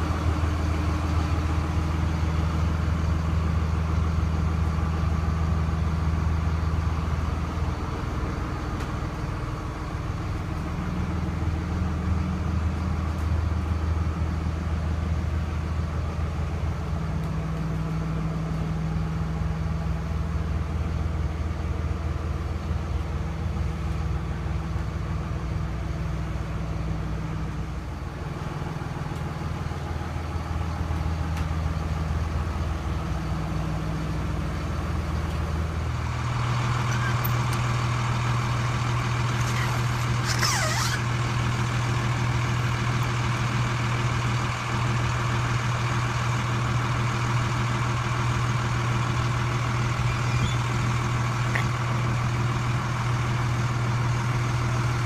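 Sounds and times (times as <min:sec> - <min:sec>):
diesel engine idling: 0:00.0 - 0:55.0.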